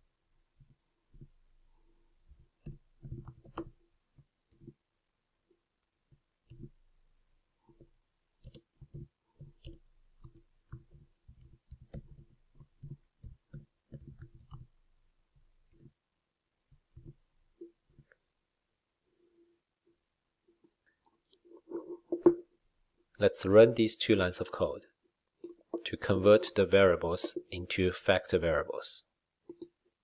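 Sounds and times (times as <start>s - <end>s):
faint keyboard typing: 7.6s - 14.8s, 29.4s - 30.0s.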